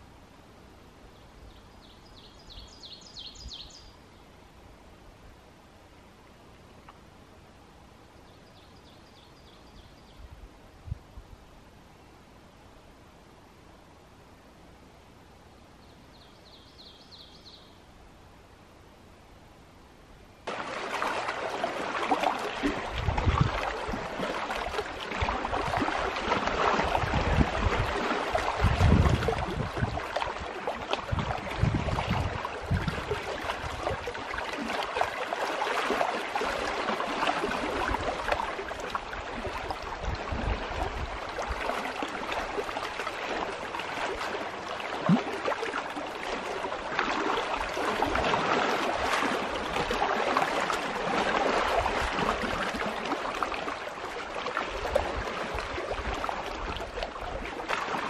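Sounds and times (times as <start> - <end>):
waves lapping against rocks: 20.5 - 58.0.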